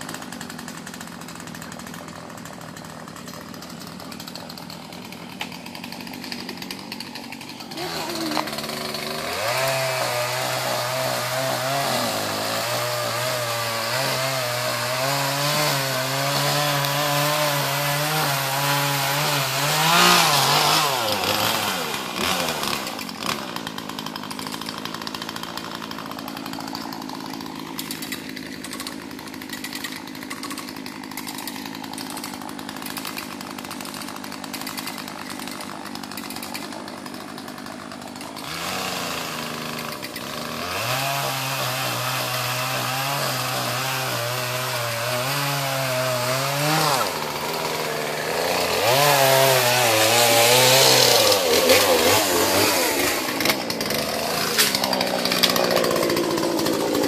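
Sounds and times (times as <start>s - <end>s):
chainsaw engine running: 0.0s - 57.0s.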